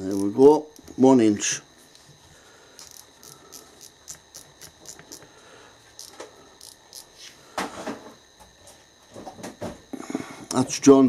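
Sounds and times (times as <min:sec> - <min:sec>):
micrometer ratchet clicking: 0:00.0 - 0:01.0, 0:02.8 - 0:05.3, 0:06.0 - 0:07.2.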